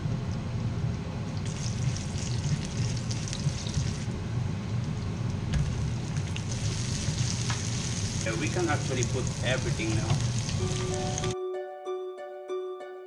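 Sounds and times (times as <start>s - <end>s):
exhaust fan humming: 0.0s - 11.4s
garlic sizzling in oil: 4.8s - 11.4s.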